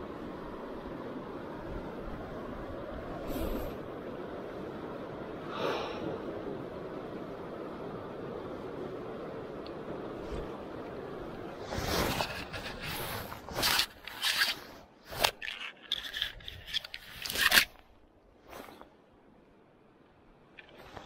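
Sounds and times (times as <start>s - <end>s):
fabric rustling on microphone: 11.4s - 19.0s.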